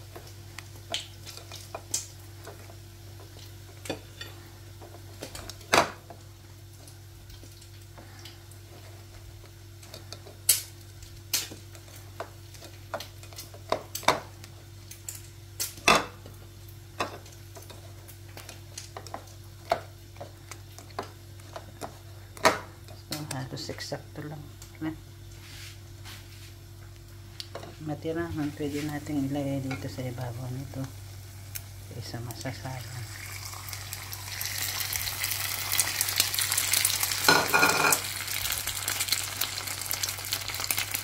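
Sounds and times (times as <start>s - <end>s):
steady low hum: 0.0s - 39.7s
plates and bowl clicking: 37.3s - 38.0s.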